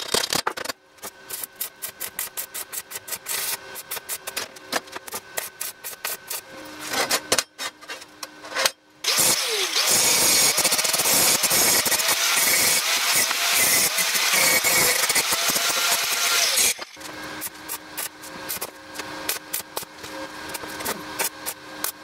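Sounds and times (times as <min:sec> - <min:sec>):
angle grinder grinding steel: 0:09.0 - 0:17.1.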